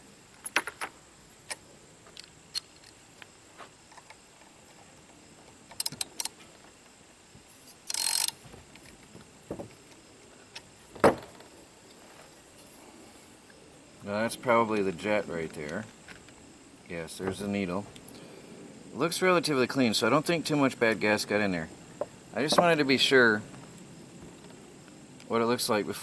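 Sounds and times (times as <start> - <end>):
metal hand tools clicking: 7.9 - 8.4.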